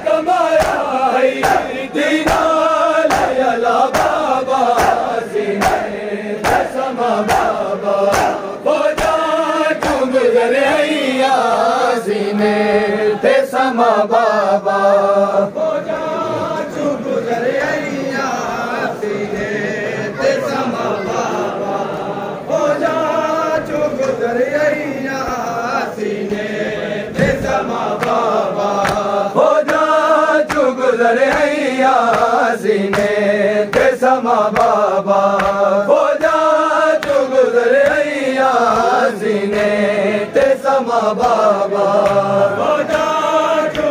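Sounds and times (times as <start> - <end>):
men chanting in unison: 0.0 - 43.9
hands slapping chests: 0.5 - 10.2, 27.2 - 35.6, 36.2 - 38.1, 38.7 - 43.9.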